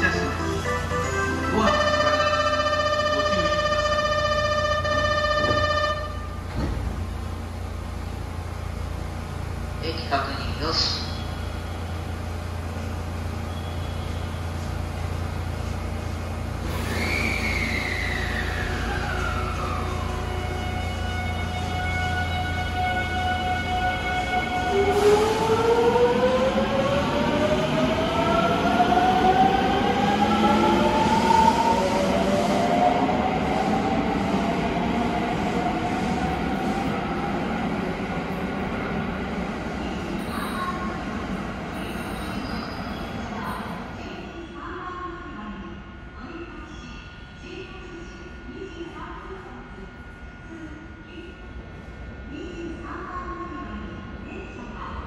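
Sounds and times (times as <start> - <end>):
train squeal falling in pitch: 16.7 - 19.2.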